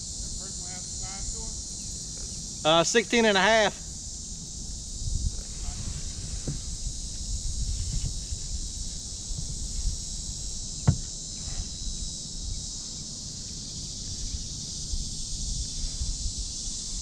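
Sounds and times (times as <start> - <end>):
high-pitched insect chorus: 0.0 - 17.0
wind rumbling on microphone: 3.8 - 12.8, 13.8 - 17.0
sharp knock: 10.8 - 11.1.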